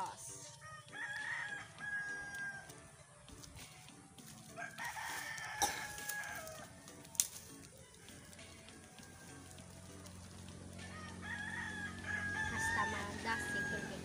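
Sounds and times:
rooster crowing: 0.6s - 2.8s, 4.6s - 6.7s, 10.8s - 14.0s.

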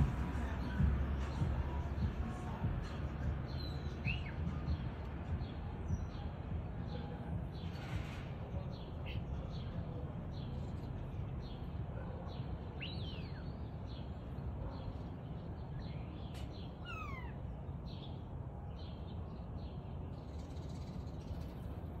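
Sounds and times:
starling singing: 0.0s - 5.0s, 16.7s - 17.4s.

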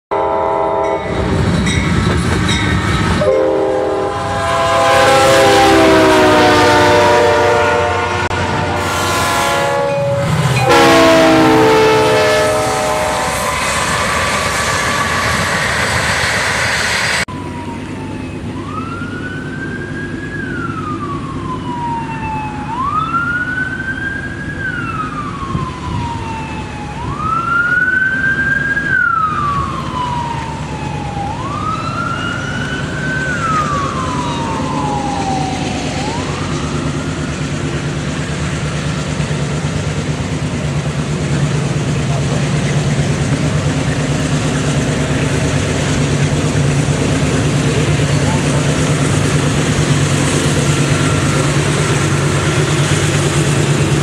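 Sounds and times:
locomotive air horns: 0.1s - 1.3s, 3.2s - 15.6s
passing trains rumbling: 0.1s - 54.0s
siren wailing: 3.2s - 15.5s, 17.2s - 38.4s, 45.6s - 53.6s
low engine rumble: 32.9s - 54.0s.

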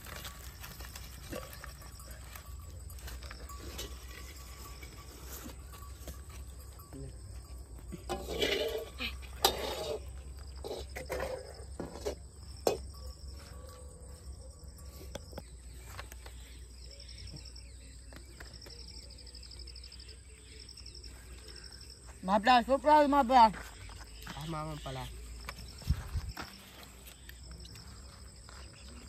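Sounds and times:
rustles: 0.0s - 6.9s
insects chirping in trills: 0.0s - 29.0s.

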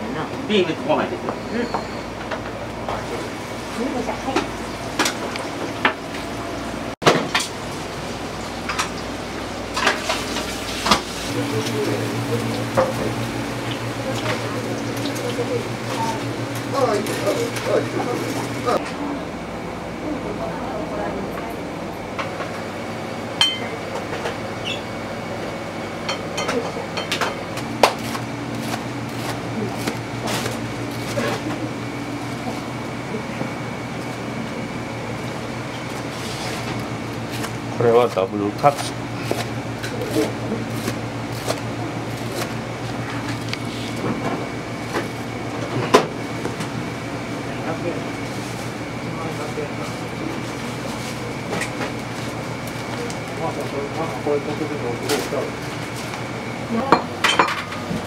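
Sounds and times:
kitchen hum: 0.0s - 58.0s
dishes and utensils clinking: 23.4s - 23.8s, 56.9s - 57.8s.

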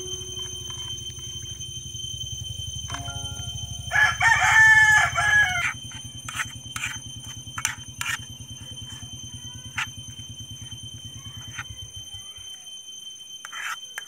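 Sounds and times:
rooster crowing: 3.8s - 5.9s.

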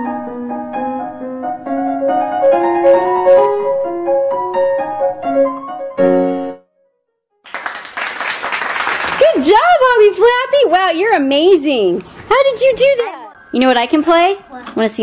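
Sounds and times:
piano melody: 0.0s - 7.2s.

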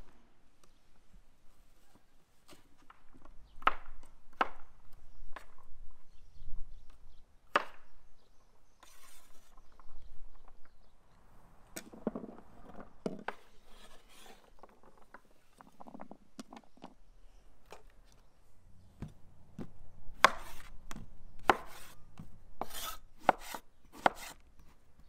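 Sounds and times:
cleaver chopping on wooden board: 19.0s - 24.4s.

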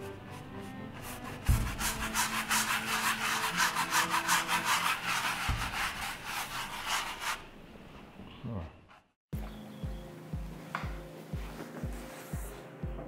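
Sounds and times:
paintbrush scrubbing strokes: 0.0s - 7.5s.

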